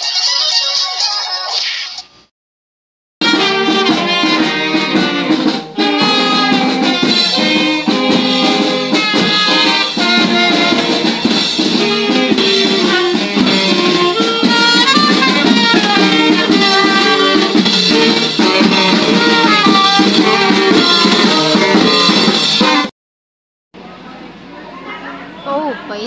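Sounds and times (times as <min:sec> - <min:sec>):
drum beat: 0:03.2 - 0:22.9
street marching band playing: 0:03.2 - 0:22.9.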